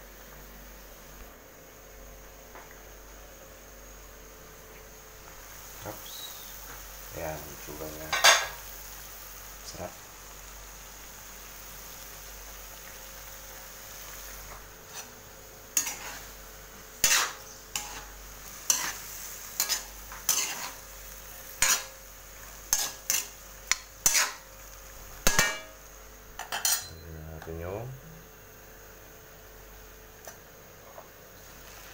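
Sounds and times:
faint sizzle: 0.0 - 31.9
metal ladle clattering on wok: 25.3 - 25.7, 26.4 - 26.9.

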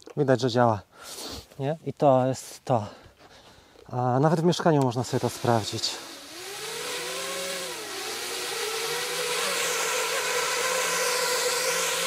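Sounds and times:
quadcopter motors whining: 4.9 - 12.0.

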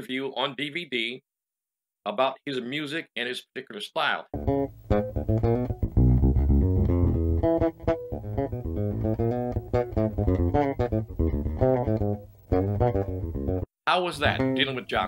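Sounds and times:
electric bass plucked notes: 4.3 - 15.0.

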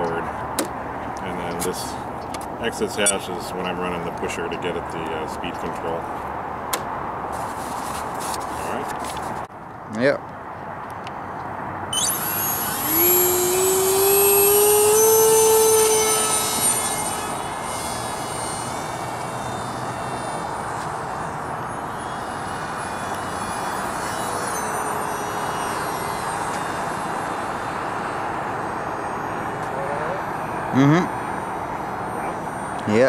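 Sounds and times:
model plane electric motor whine: 11.9 - 33.0.

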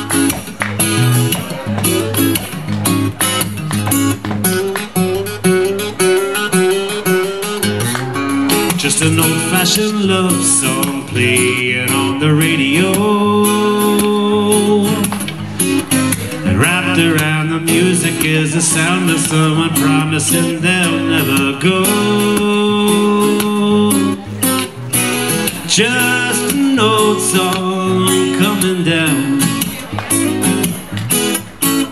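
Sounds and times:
acoustic guitar strumming: 0.0 - 31.9
man singing: 8.5 - 30.7.

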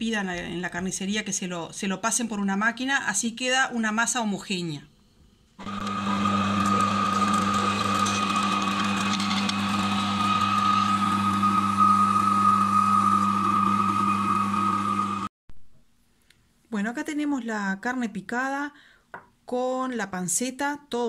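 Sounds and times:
electric meat grinder running: 5.6 - 15.3.

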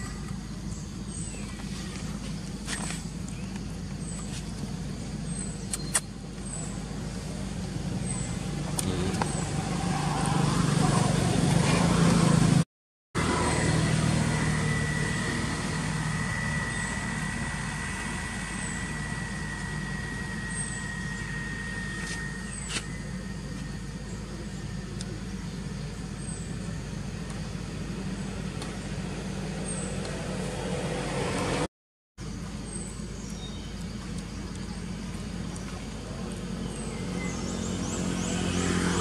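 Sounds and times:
vehicle engine humming: 0.0 - 39.0
thin high whine: 13.2 - 24.0.

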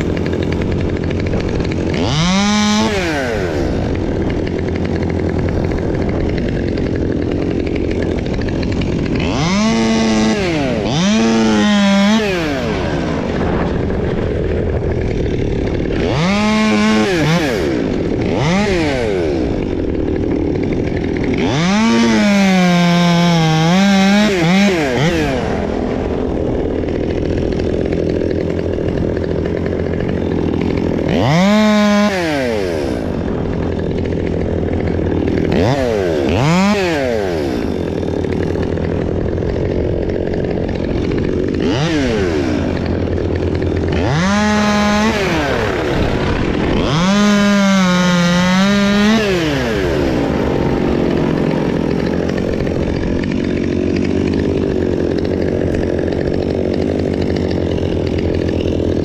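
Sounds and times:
chainsaw idling and cutting branches: 0.0 - 59.0.

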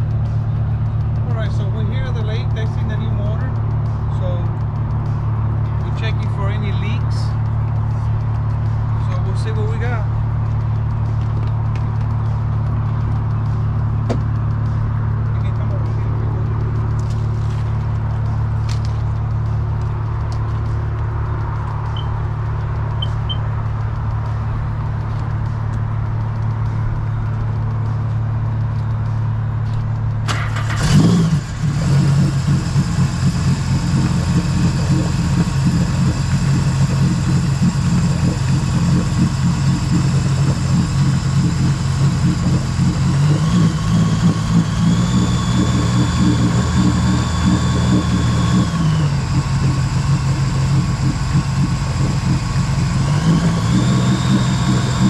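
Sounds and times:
jet ski engine idling: 30.3 - 55.0.

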